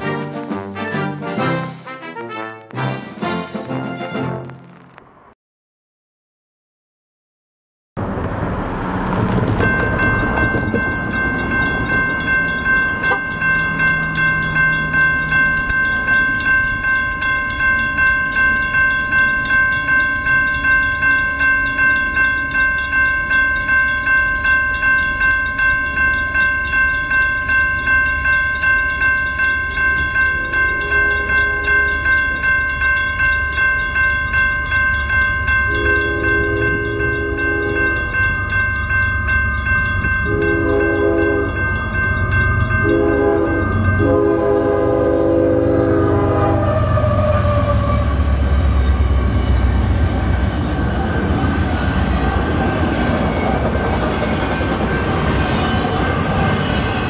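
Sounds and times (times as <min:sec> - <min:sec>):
crossing bell ringing: 0:09.0 - 0:57.0
train horn: 0:30.4 - 0:32.2, 0:35.7 - 0:38.1, 0:40.2 - 0:41.6, 0:42.8 - 0:50.2.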